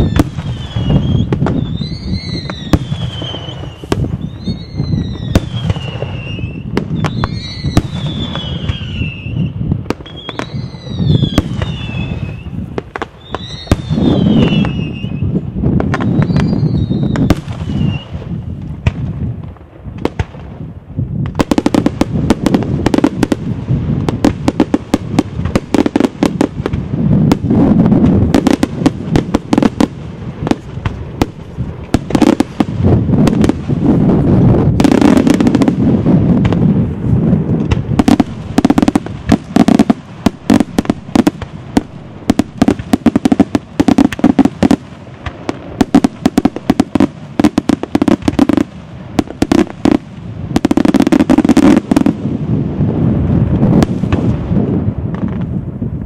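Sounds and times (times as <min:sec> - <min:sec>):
falling whistle: 0:00.0 - 0:09.5, 0:13.2 - 0:15.2, 0:16.1 - 0:18.1
fireworks bangs and crackles: 0:00.0 - 0:56.0.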